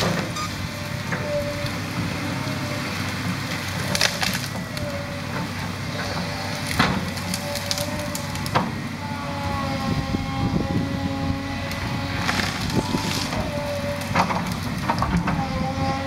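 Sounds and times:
excavator engine running: 0.0s - 16.0s
tree cracking and splintering: 1.4s - 8.9s, 11.4s - 16.0s.

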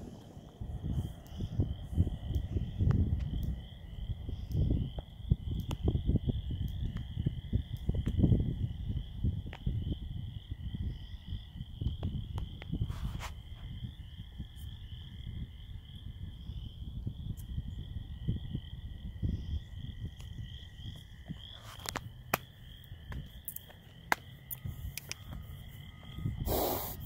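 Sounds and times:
low irregular rumble: 0.0s - 4.5s.

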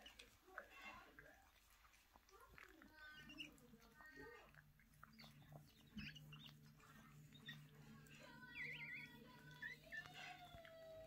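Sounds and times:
puppy squeaking: 3.0s - 3.7s, 5.0s - 11.0s.

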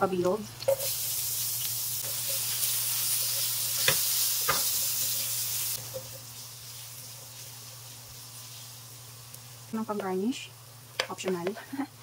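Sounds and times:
onions sizzling in hot oil: 0.0s - 12.0s
spatula stirring in pan: 2.0s - 9.5s.

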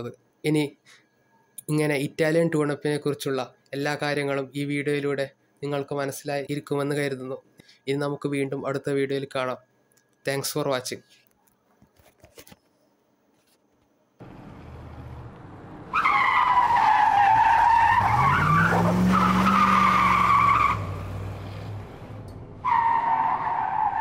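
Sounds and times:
car engine revving: 14.2s - 22.7s
tyres squealing: 15.9s - 21.7s.

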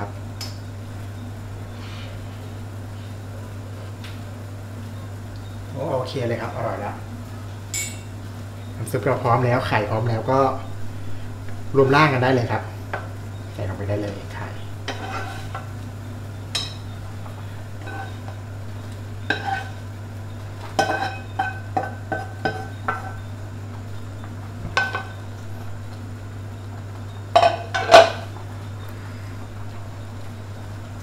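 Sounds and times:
spatula knocking against pots: 20.7s - 23.2s.

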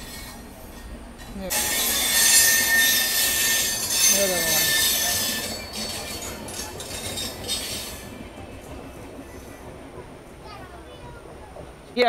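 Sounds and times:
train rushing past: 0.0s - 12.0s
thin wheel squeal: 1.5s - 8.1s.

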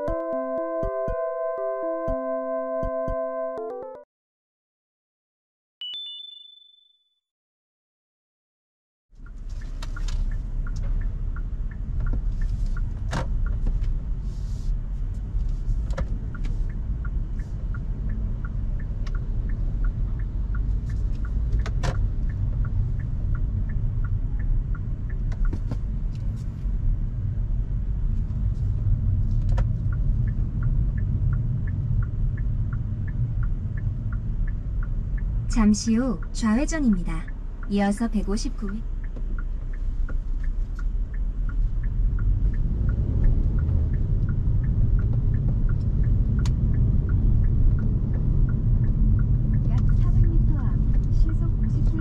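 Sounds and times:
light regular ticking: 9.2s - 14.2s, 15.1s - 26.4s, 28.4s - 52.0s.

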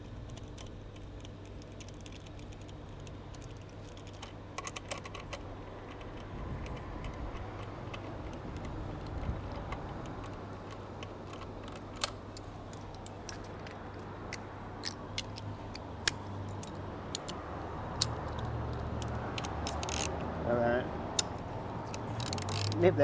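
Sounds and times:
low steady hum: 0.0s - 23.0s
metal tools clicking and clinking: 18.0s - 20.2s, 21.2s - 22.8s.

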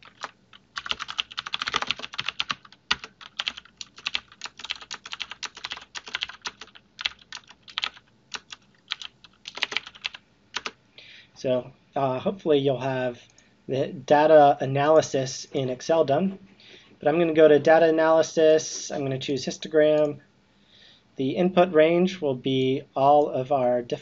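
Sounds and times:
typing on computer keyboard: 0.0s - 10.8s.

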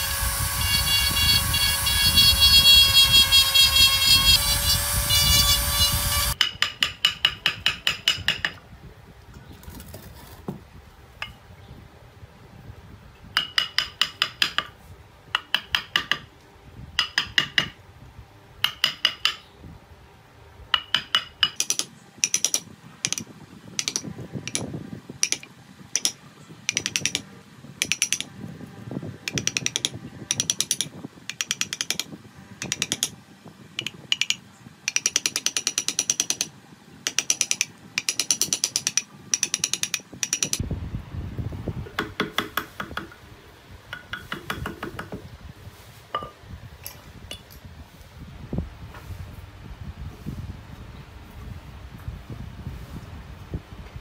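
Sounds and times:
mallet tapping chisel into wood: 13.4s - 14.7s, 15.4s - 16.3s, 17.0s - 17.8s, 18.6s - 19.4s, 20.8s - 23.2s, 29.3s - 33.1s, 41.9s - 43.2s, 43.9s - 45.2s.

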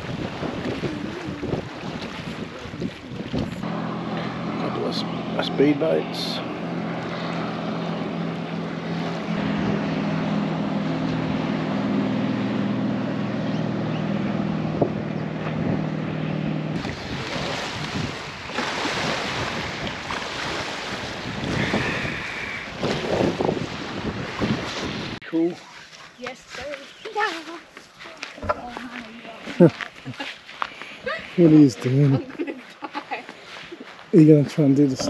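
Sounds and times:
wind buffeting microphone: 0.0s - 5.4s, 6.4s - 25.2s
speedboat engine humming: 0.0s - 25.5s.

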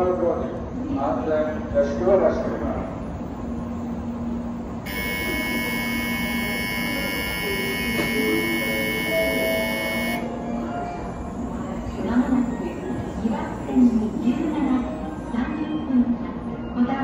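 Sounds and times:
low hum of standing train: 0.0s - 17.0s
electronic departure bell ringing: 4.9s - 10.3s.

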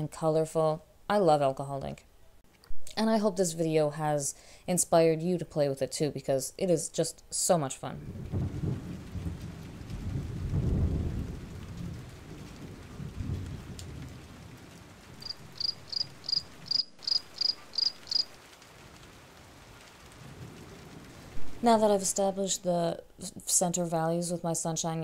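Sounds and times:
distant thunder rumble: 7.9s - 23.2s
cricket chirping: 15.2s - 18.3s.

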